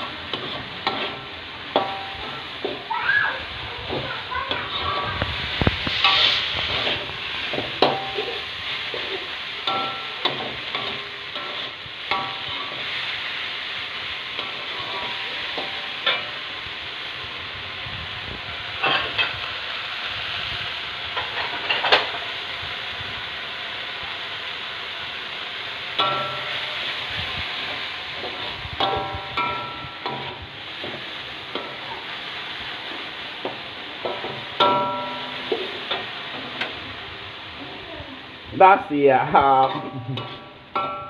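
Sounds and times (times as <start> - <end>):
metal spatula scraping a wok: 0.0 - 2.9, 3.8 - 16.5, 18.8 - 19.4, 26.0 - 36.8, 39.6 - 41.0
greens sizzling in a wok: 0.0 - 41.0.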